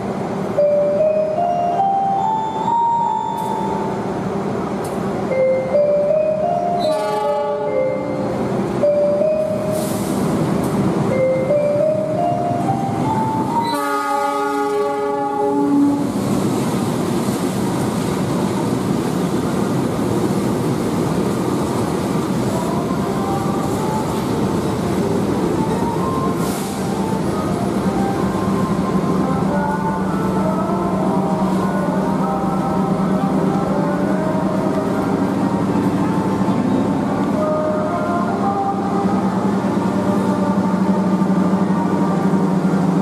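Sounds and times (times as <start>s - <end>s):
train running on rails: 0.0s - 43.0s
locomotive horn chord: 6.6s - 8.3s, 13.5s - 16.2s.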